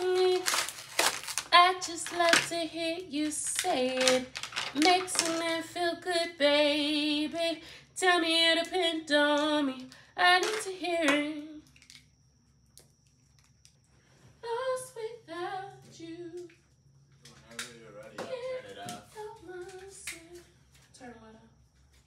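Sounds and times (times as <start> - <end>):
woman singing unaccompanied: 0.0 - 11.6, 14.4 - 16.5, 18.2 - 21.5.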